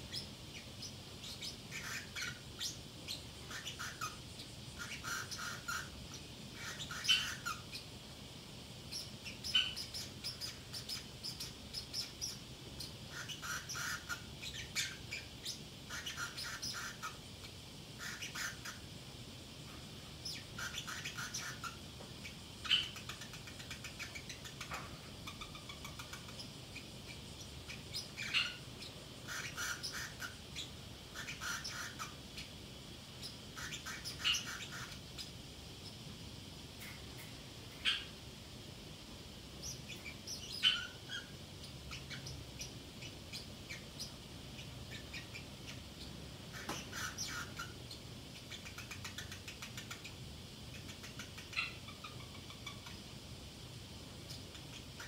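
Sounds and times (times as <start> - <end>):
parrot chirps and twitters: 0.0 - 8.2, 8.8 - 38.2, 39.5 - 55.0
parrot squawks: 1.4 - 2.7, 3.5 - 4.2, 4.8 - 6.0, 6.6 - 7.7, 13.1 - 15.2, 15.9 - 17.2, 18.0 - 18.8, 20.6 - 21.8, 29.2 - 32.2, 33.6 - 35.0, 46.5 - 47.8, 50.7 - 53.0.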